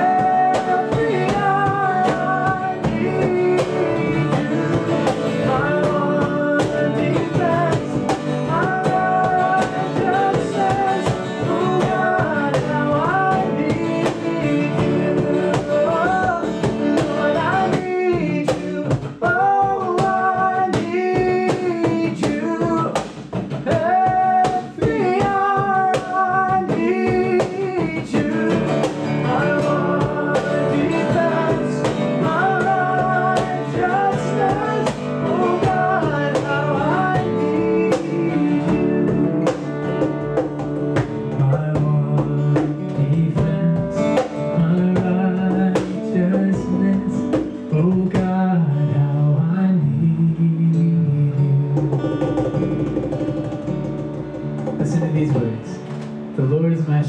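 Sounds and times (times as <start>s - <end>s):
men singing: 0.0s - 52.1s
cajon beat: 0.0s - 57.0s
strummed acoustic guitar: 0.0s - 57.0s.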